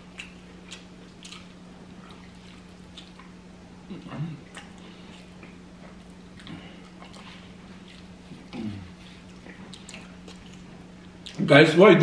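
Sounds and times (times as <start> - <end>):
chewing and lip-smacking: 0.0 - 11.4
steady low hum: 0.0 - 12.0
person humming mm: 8.5 - 9.0.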